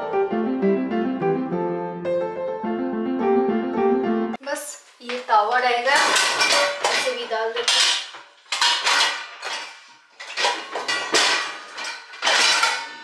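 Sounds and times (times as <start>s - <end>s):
metal dishes clattering: 5.9s - 13.0s.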